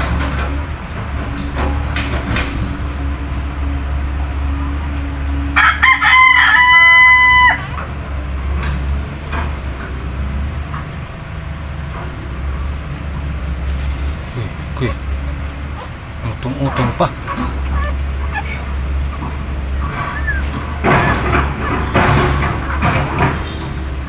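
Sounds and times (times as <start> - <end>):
rooster crowing: 4.6 - 7.9, 16.6 - 23.9
steady low hum: 7.7 - 24.0.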